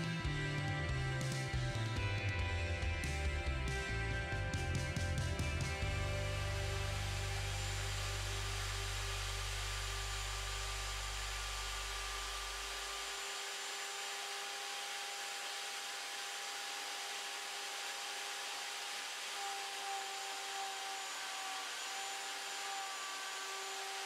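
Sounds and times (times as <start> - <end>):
router cutting wood: 5.2 - 24.0.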